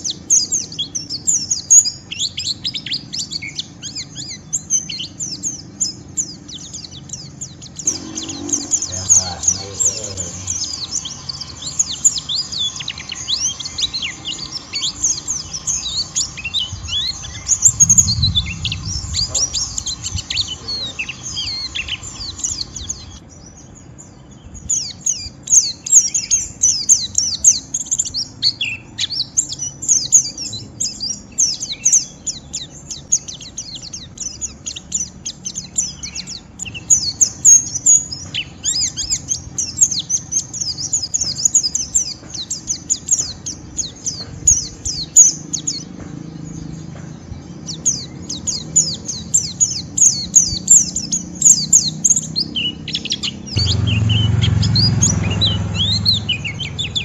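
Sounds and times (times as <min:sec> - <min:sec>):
bird chattering twitter: 0:00.0 - 0:57.0
low thump: 0:53.6 - 0:57.0.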